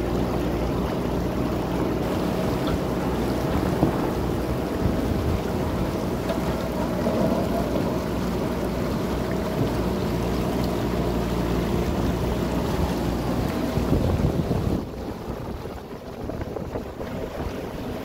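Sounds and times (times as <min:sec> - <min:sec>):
constant rushing noise: 0:00.0 - 0:18.0
diesel engine running: 0:00.0 - 0:18.0.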